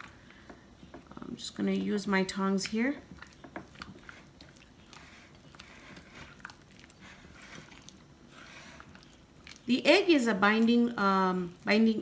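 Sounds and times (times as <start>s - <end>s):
wet squishing and scraping: 2.4s - 9.8s.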